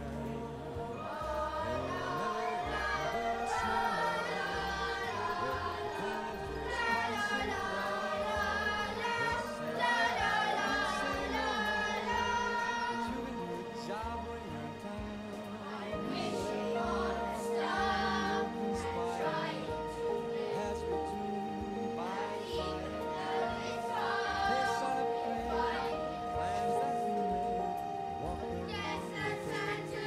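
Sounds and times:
children's choir singing: 0.0s - 30.0s
instrumental accompaniment: 0.0s - 30.0s.

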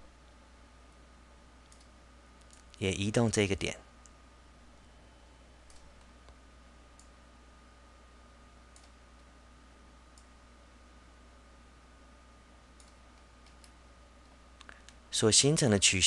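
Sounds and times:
computer mouse clicks: 1.6s - 2.8s, 5.6s - 6.1s, 8.7s - 9.3s, 12.8s - 13.8s.

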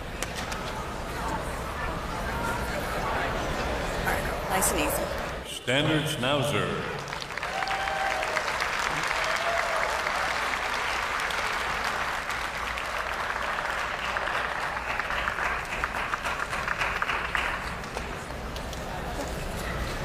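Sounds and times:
audience applauding: 6.6s - 18.3s.

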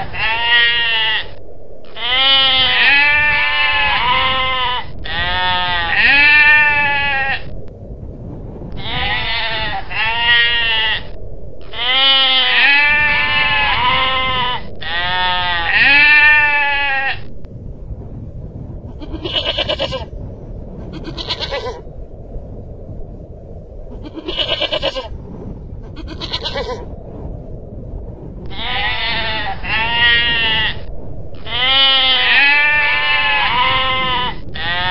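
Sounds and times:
goral bleating: 0.0s - 7.5s, 8.8s - 17.3s, 19.0s - 20.1s, 20.9s - 21.8s, 24.0s - 25.1s, 25.9s - 26.9s, 28.5s - 34.9s.

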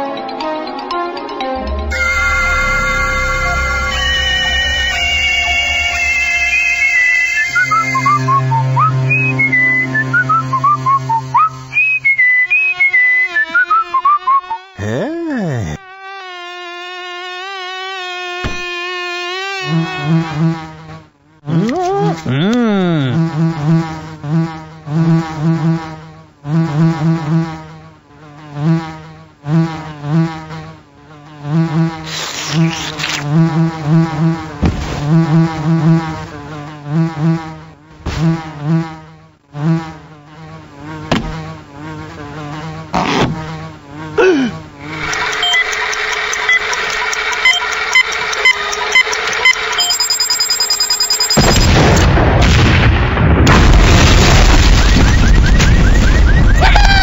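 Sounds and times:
steady drone with ticks: 0.0s - 11.7s, 44.8s - 51.4s
cartoon insect buzzing: 1.9s - 51.8s.

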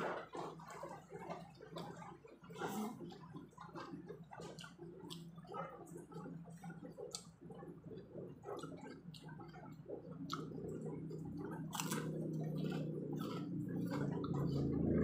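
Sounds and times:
steady low hum: 0.0s - 15.0s
wet chewing and smacking: 0.0s - 15.0s
crunching crackers: 11.7s - 14.1s.

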